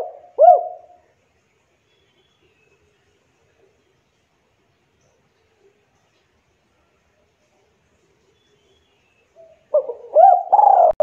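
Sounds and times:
dove cooing: 0:00.0 - 0:01.1, 0:09.4 - 0:11.0.

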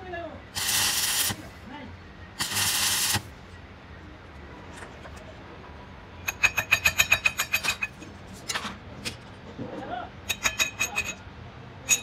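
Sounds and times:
welding arc crackling: 0:00.5 - 0:01.6, 0:02.4 - 0:03.4
ringing steel-on-steel taps: 0:06.2 - 0:08.0, 0:10.3 - 0:11.2.

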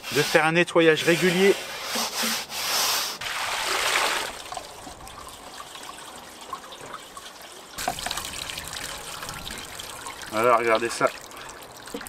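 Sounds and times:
sponge scrubbing metal lid: 0:00.0 - 0:03.5
water splash: 0:03.2 - 0:06.1
water trickling and dripping: 0:03.9 - 0:12.0.

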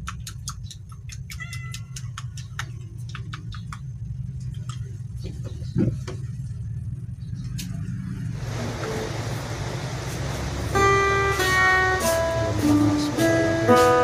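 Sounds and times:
acoustic guitar music: 0:08.4 - 0:14.0.

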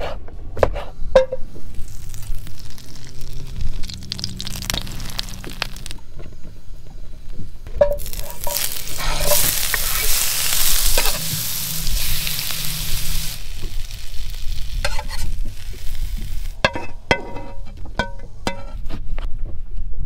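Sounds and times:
fish frying in a pan: 0:01.7 - 0:06.0, 0:08.0 - 0:16.6.

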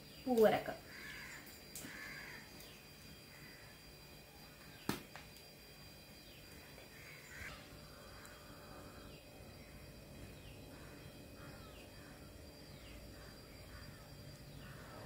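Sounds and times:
faint crows cawing: 0:00.8 - 0:05.1, 0:06.2 - 0:15.0.

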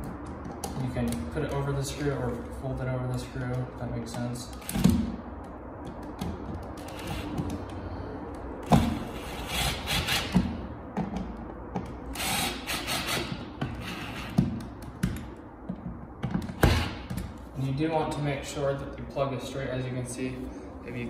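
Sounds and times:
cordless drill driving screw: 0:06.8 - 0:07.2, 0:12.1 - 0:14.4.

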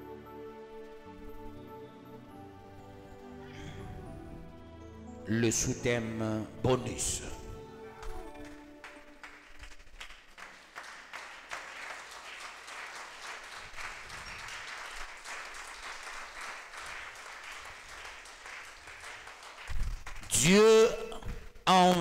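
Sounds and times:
crowd applauding: 0:07.9 - 0:20.6.

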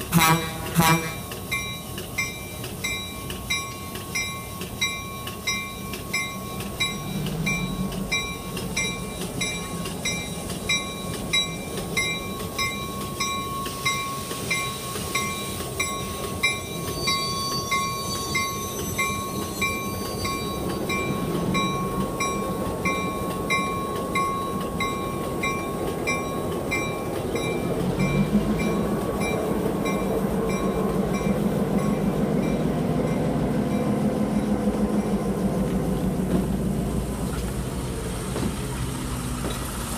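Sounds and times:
model train running rumble: 0:00.0 - 0:39.9
bell ringing: 0:01.5 - 0:34.0.

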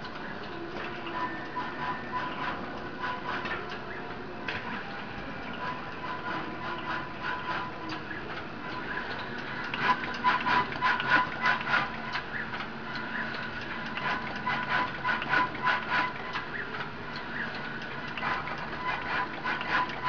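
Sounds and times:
machine mechanical clicks and ticks: 0:00.0 - 0:20.0
steady high machine hum: 0:00.0 - 0:20.0.

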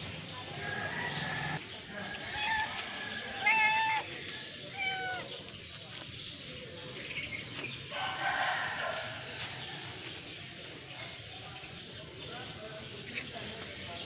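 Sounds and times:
cat meowing: 0:03.4 - 0:04.1, 0:04.7 - 0:05.4.

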